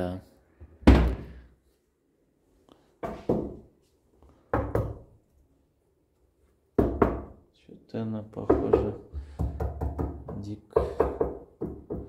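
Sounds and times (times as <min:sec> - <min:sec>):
cabinet doors knocking shut: 0:00.8 - 0:01.4.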